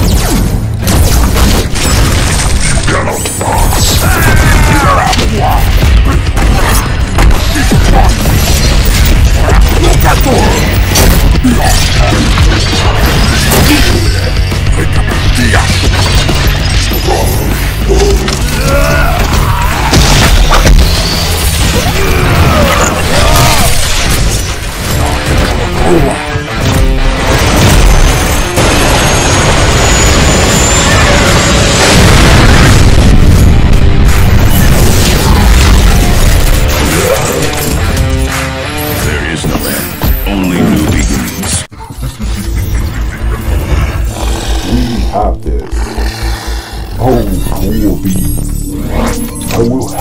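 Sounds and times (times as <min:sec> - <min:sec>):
action film music: 0:00.0 - 0:50.0
booms and metal crashes: 0:03.5 - 0:38.4.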